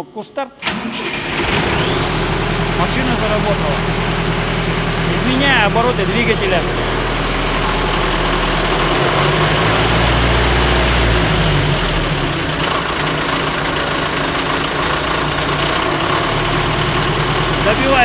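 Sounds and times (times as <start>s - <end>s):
diesel engine revving: 0.6s - 18.0s
high whine: 1.8s - 12.6s.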